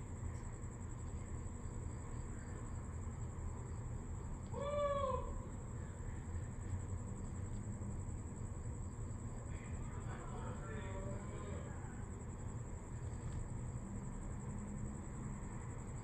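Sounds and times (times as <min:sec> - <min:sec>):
animal call: 0:04.6 - 0:05.4.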